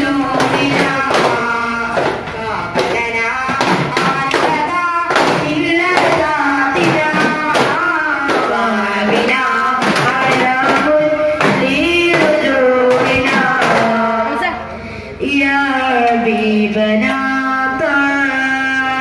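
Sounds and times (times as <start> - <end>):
frame drums beating: 0.0 - 14.3
person singing: 0.0 - 19.0.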